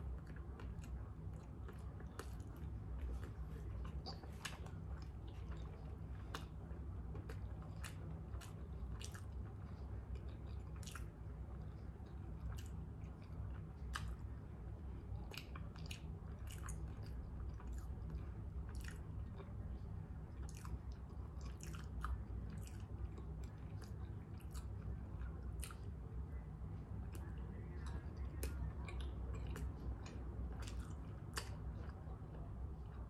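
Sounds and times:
person chewing food: 0.0 - 26.2, 26.8 - 33.0
steady low hum: 0.0 - 33.0.

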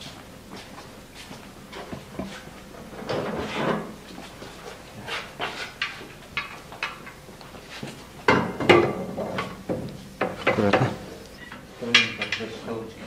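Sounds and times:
scraping rustle: 1.8 - 6.1.

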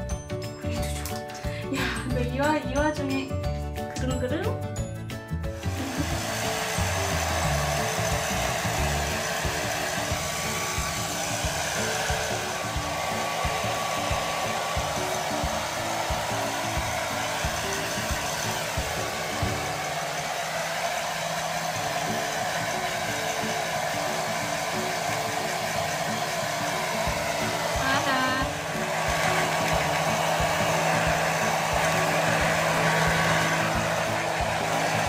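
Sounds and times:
hair dryer running: 0.0 - 3.9, 5.4 - 35.0.

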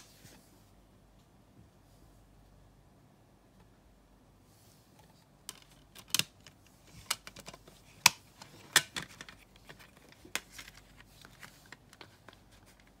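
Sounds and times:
plastic disc case clicking: 5.5 - 12.4.

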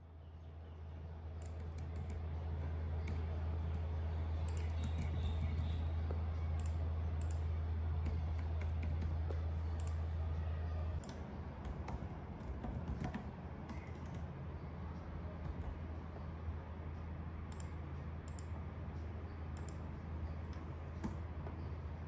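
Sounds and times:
steady low hum: 0.0 - 22.0
laptop keyboard typing: 1.4 - 5.9, 6.6 - 10.0, 11.0 - 14.4, 15.4 - 15.9.

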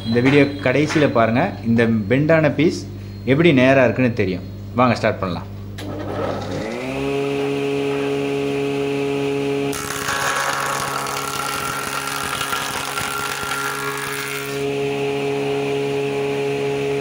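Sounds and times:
planer running hum: 5.8 - 17.0
planer blades shaving board: 9.7 - 14.7.

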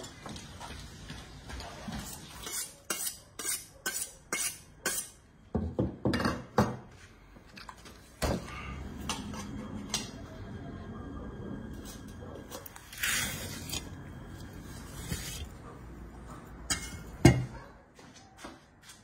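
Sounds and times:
metal utensils clinking and scraping: 16.6 - 17.3.

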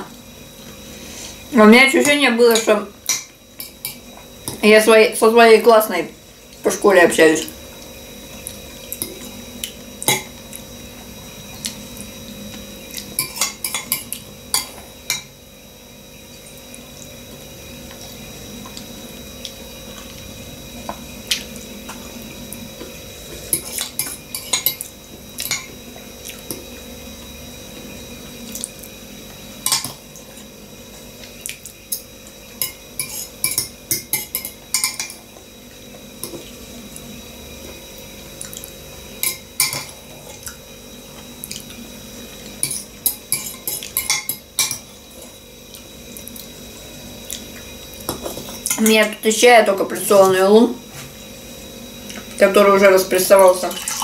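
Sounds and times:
faint steady hum: 0.0 - 54.0
fork scraping a bowl: 33.0 - 35.2.

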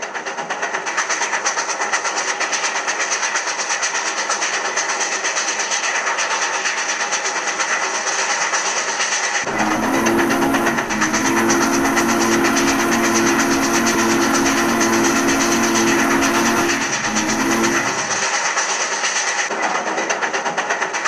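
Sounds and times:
steam locomotive running: 0.0 - 19.6
steam hissing: 9.5 - 18.9.

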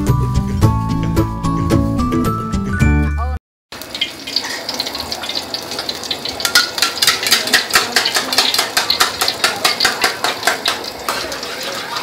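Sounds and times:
oil sizzling in a wok: 3.7 - 12.0.

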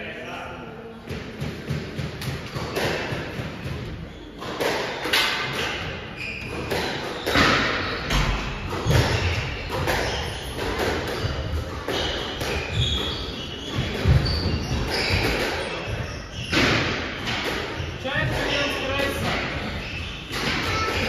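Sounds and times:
racket striking squash ball: 1.1 - 21.0
short high shoe squeaks: 4.0 - 4.7, 6.1 - 8.2, 8.8 - 17.2, 17.8 - 21.0.

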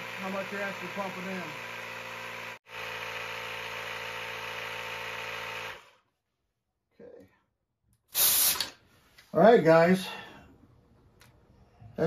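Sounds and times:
tire inflator motor drone: 0.0 - 6.1
hiss of air from tire valve: 8.1 - 8.8.

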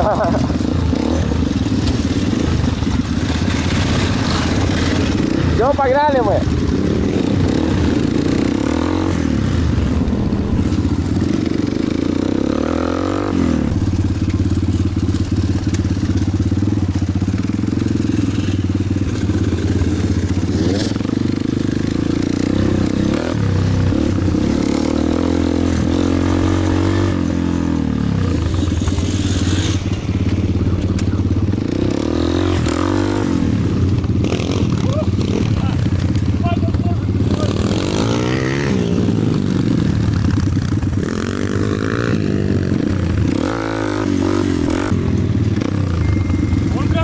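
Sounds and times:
pit bike engine revving: 0.0 - 47.0.

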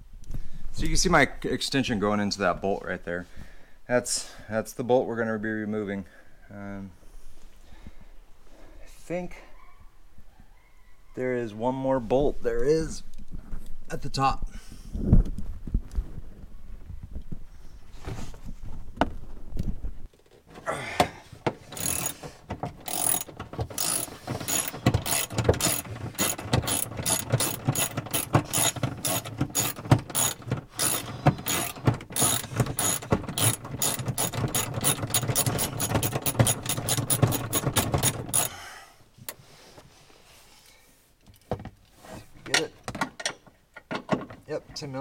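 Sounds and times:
socket ratchet clicking: 21.5 - 38.6.

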